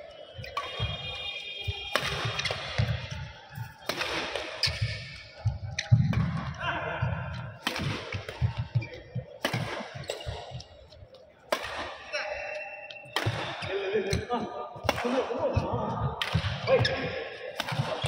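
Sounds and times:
racket hitting shuttlecock: 1.9 - 6.6, 7.6 - 10.9, 11.5 - 12.1, 13.1 - 14.2, 14.8 - 16.9, 17.6 - 18.0.

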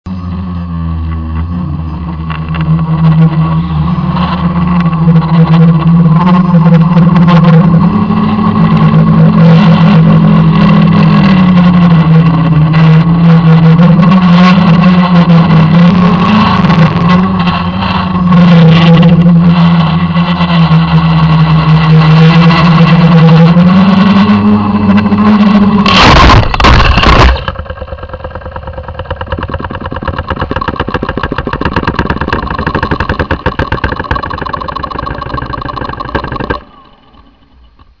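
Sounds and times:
drone motors humming: 0.1 - 38.0
fast rattling buzz: 1.6 - 38.0
drone crashing into ground: 25.1 - 38.0.

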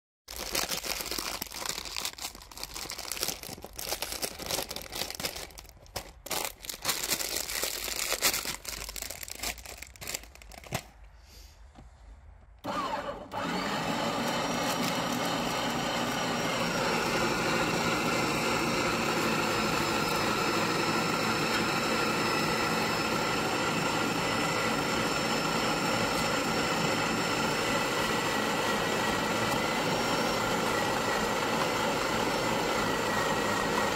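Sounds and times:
plastic bag crinkling: 0.3 - 11.0, 14.3 - 15.5
electric meat grinder running: 12.7 - 33.9.

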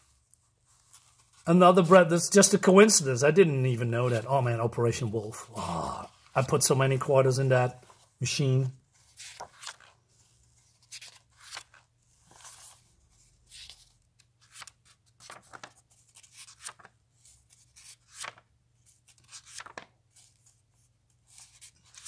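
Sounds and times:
paper pages rustling: 0.0 - 2.5, 7.7 - 22.0.

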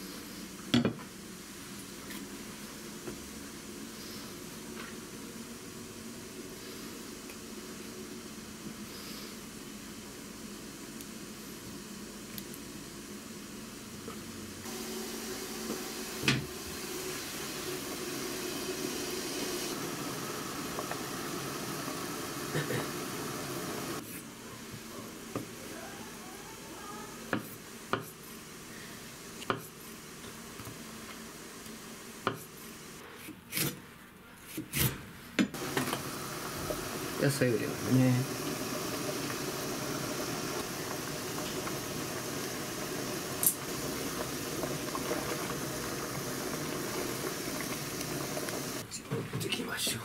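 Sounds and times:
pot bubbling: 14.6 - 24.0, 35.5 - 48.8.

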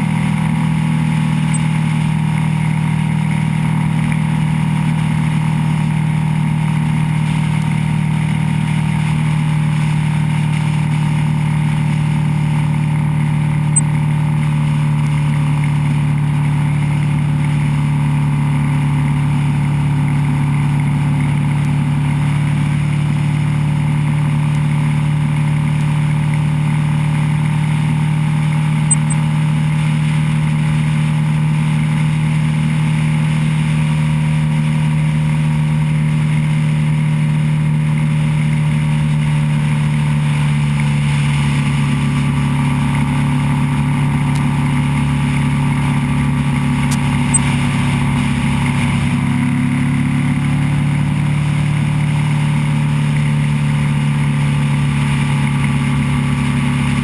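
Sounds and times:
wind and road noise: 0.0 - 17.9, 20.6 - 34.0, 38.8 - 57.0
motorcycle engine cruising: 41.8 - 57.0.

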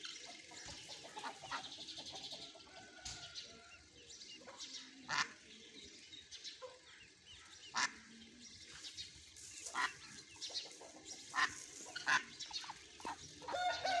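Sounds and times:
ducklings peeping: 0.0 - 14.0
duck calls: 5.1 - 5.4, 7.7 - 8.1, 9.7 - 10.1, 11.3 - 12.4.

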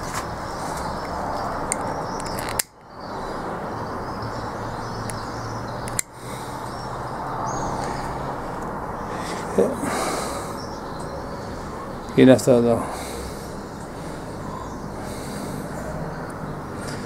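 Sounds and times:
birds chirping: 0.0 - 17.0
outdoor background hiss: 0.0 - 17.0.

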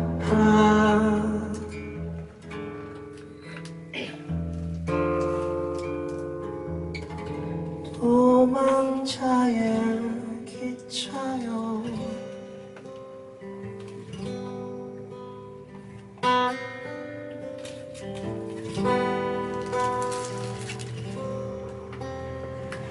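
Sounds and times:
man singing: 0.0 - 2.0, 7.9 - 12.4
acoustic guitar: 0.0 - 22.9.

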